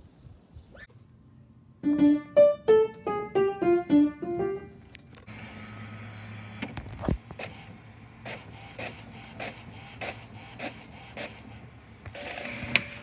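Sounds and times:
piano single notes: 1.8 - 4.8
printer humming and whirring: 5.2 - 13.0.

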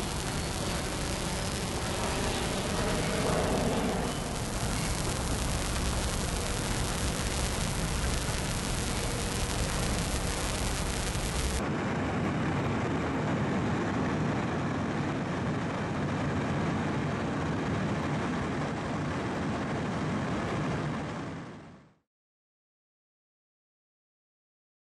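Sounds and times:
wind and sea hiss: 0.0 - 11.6.

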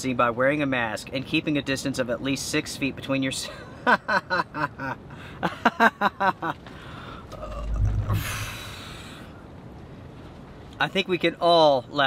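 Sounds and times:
man exhaling breathily: 6.7 - 9.3.

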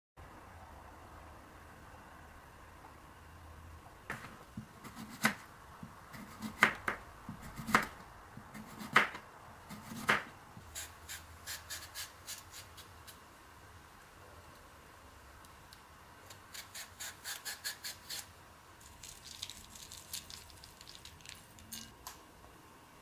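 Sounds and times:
vegetable peeler scraping: 10.7 - 13.2, 16.3 - 18.3.

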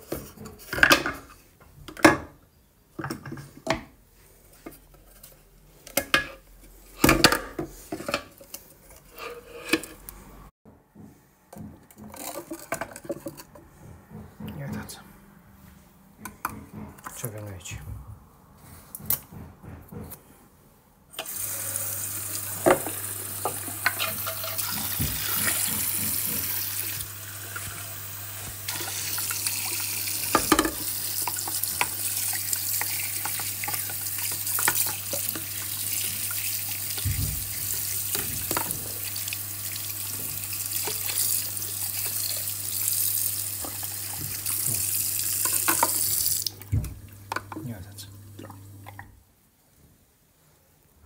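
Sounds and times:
parts knocking against sink: 10.7 - 14.8, 16.2 - 17.9, 23.5 - 26.7, 30.3 - 32.0
tap water splashing into sink: 22.3 - 27.8, 28.7 - 47.6.

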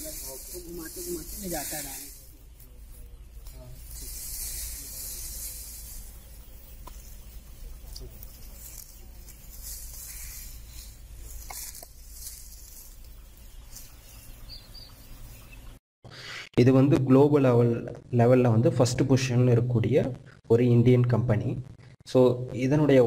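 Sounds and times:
footsteps shuffling through dry litter: 0.0 - 14.4.

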